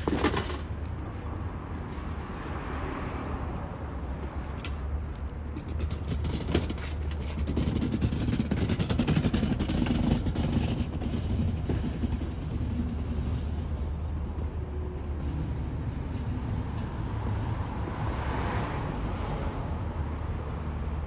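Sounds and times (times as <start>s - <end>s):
steady low rumble: 3.6s - 20.6s
car going by: 9.7s - 21.0s.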